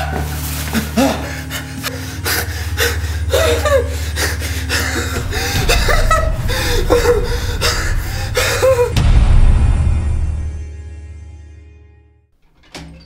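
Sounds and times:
man gasping and breathing hard: 0:00.8 - 0:09.0
man moaning: 0:00.9 - 0:09.0
low steady hum: 0:01.3 - 0:10.9.

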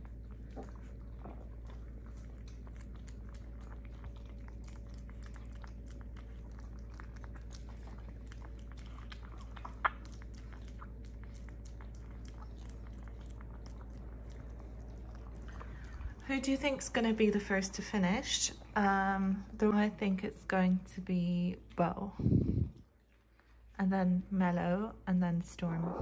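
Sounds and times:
dog eating from a bowl: 0:00.0 - 0:19.0.

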